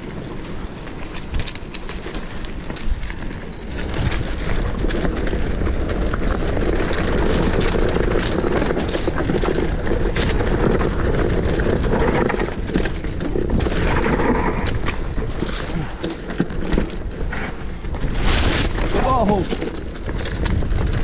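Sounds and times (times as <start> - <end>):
bike rattling and clicking: 0.0 - 21.0
bike tyres rolling over dirt: 0.0 - 21.0
wind on microphone: 16.9 - 21.0.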